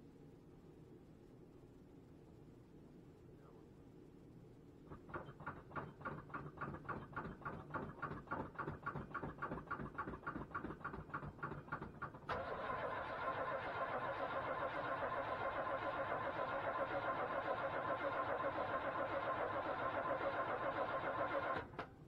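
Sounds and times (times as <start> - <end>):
engine cranking and starting: 8.6 - 21.9.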